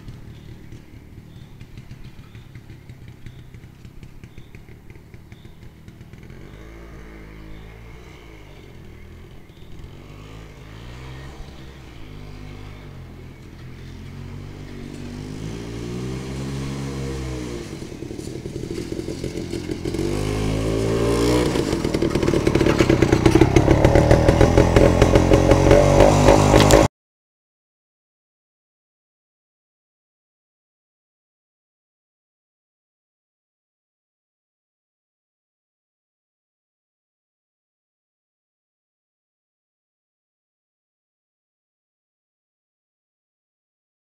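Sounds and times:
motorcycle two-stroke engine revving: 0.0 - 26.9.

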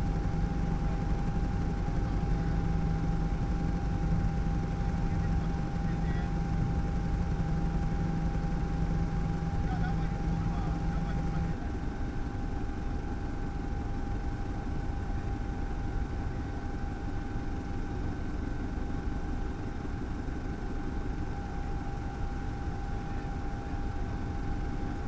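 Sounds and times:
helicopter engine and rotor: 0.0 - 25.0.

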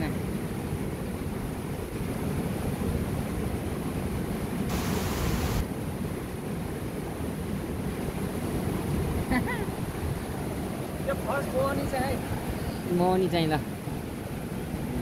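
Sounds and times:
mountain river rushing: 0.2 - 15.0
brief loud hiss: 4.7 - 5.6.

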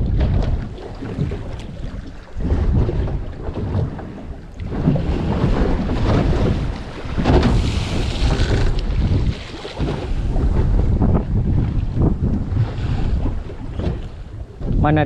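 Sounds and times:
sea water rushing along hull: 0.0 - 15.0
wind buffeting microphone: 0.0 - 15.0.

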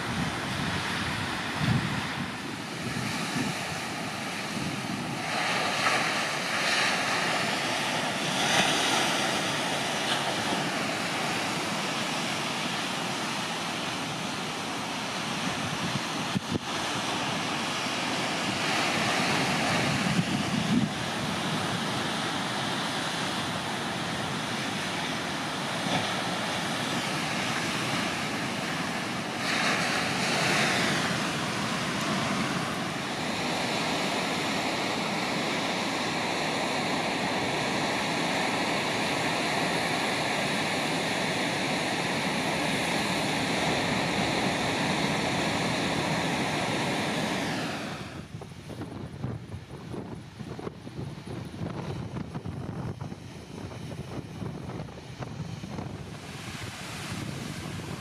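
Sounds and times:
ocean surf breaking on rocks: 0.0 - 58.0.

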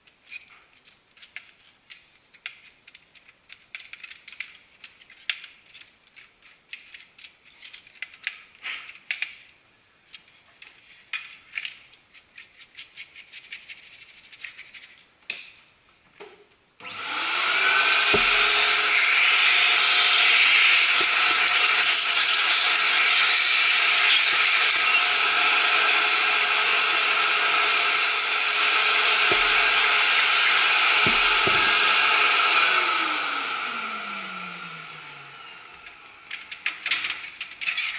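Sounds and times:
plastic clicks and rubbing: 0.0 - 15.1
vacuum cleaner whining: 16.8 - 37.0
knocks: 18.0 - 18.8, 29.2 - 30.2, 30.9 - 32.0.

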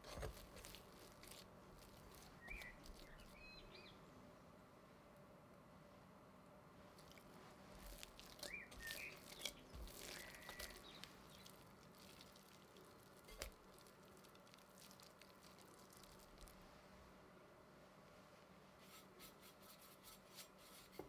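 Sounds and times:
dough squelching by hand: 0.0 - 3.6, 6.9 - 16.7.

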